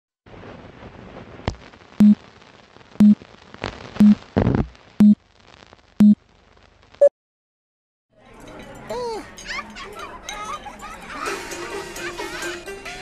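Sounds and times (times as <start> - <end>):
film hiss and crackle: 0.3 - 7.1.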